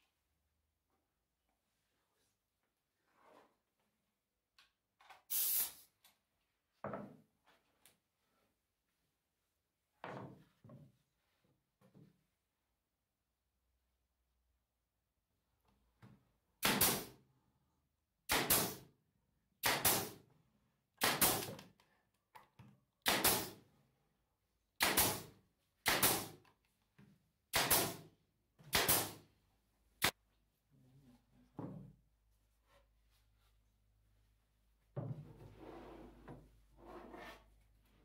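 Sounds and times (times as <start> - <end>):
hiss of exhaust air: 5.3 - 5.9
nail gun shots: 16.6 - 17.2, 18.3 - 18.8, 19.6 - 20.2, 21.0 - 21.6, 23.0 - 23.6, 24.8 - 26.4, 27.5 - 28.1, 28.7 - 29.2.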